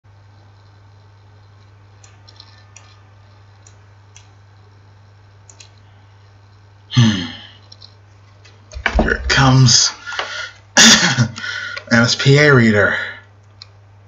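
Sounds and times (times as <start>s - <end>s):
low electrical hum: 0.1s - 14.0s
computer mouse clicks: 1.6s - 4.4s, 5.4s - 5.8s, 7.6s - 8.0s.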